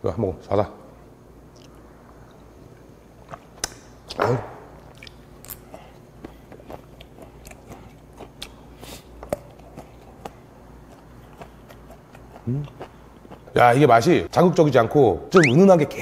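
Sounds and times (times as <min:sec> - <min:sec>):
man chewing: 0:04.9 - 0:13.5.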